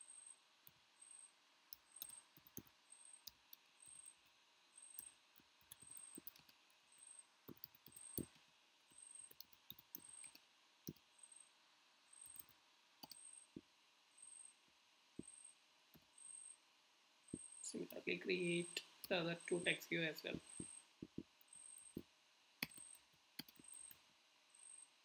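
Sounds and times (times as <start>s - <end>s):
typing on computer keyboard: 1.7s - 3.4s, 4.9s - 6.6s, 7.5s - 8.4s, 9.3s - 11.0s.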